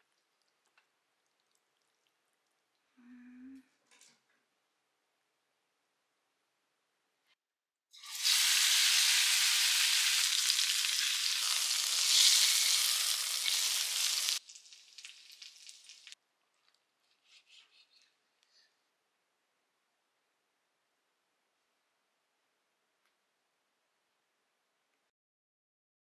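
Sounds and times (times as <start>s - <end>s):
faint crackle: 0.0s - 3.0s, 12.4s - 18.7s
tripe sizzling in hot oil: 8.0s - 16.2s.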